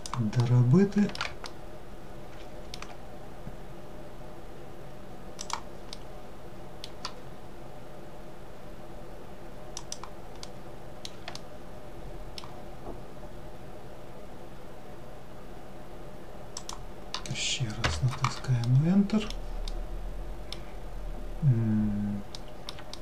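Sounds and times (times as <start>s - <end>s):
low electrical hum: 0.0s - 23.0s
mouse and keyboard clicks: 2.7s - 3.0s, 5.4s - 6.0s, 6.8s - 7.2s, 9.8s - 11.5s, 16.6s - 19.8s.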